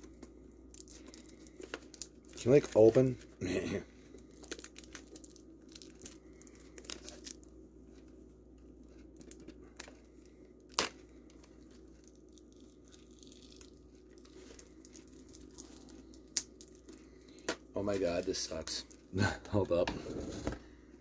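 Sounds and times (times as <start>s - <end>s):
plastic film crinkling: 0.0s - 8.2s, 8.8s - 19.1s.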